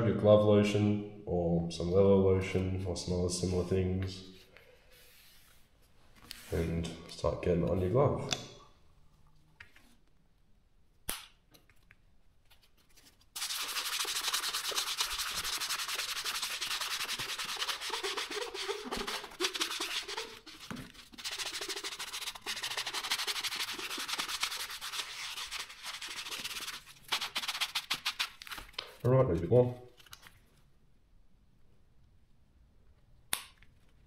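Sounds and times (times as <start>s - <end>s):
hands scrubbing leather glove: 13.2s - 28.7s.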